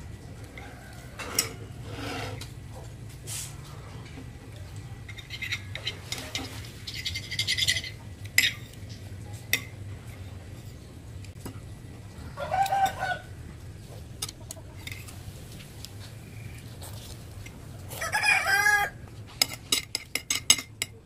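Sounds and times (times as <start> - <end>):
metal spoon scraping glass plate: 1.2 - 2.5, 5.1 - 8.8
chicken calling: 12.2 - 13.5, 17.9 - 19.0.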